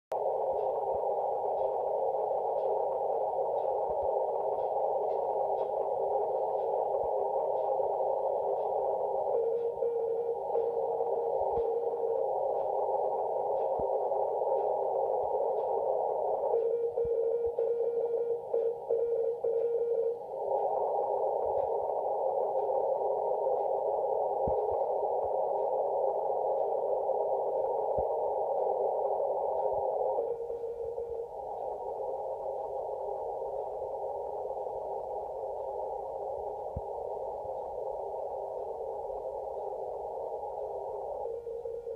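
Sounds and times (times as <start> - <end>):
faint morse code tones: 0.1 - 41.9
radio static hiss: 0.1 - 41.9
morse code tone: 8.4 - 13.8, 15.5 - 21.0.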